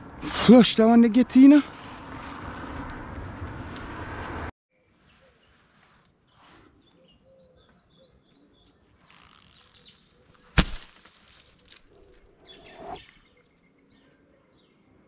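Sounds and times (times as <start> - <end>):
faint bird chirps: 4.7 - 10.5
slingshot crack: 10.6 - 11.2.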